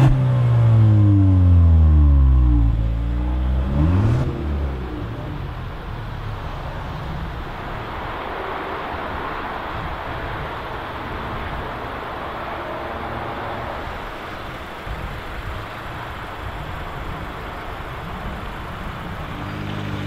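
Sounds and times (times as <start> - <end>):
car engine idling: 0.0 - 20.0.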